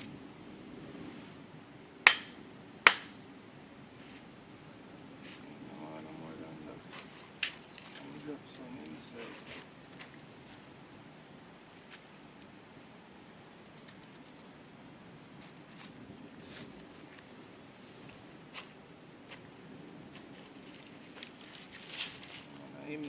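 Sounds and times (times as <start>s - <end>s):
faint outdoor background: 0.0s - 23.0s
bird chirping: 4.6s - 11.2s, 11.8s - 23.0s.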